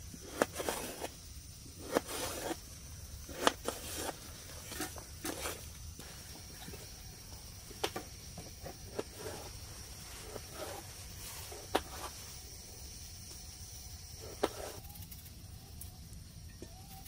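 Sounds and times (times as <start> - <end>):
knife scraping potatoes: 0.2 - 5.8, 8.4 - 12.2, 14.2 - 14.8.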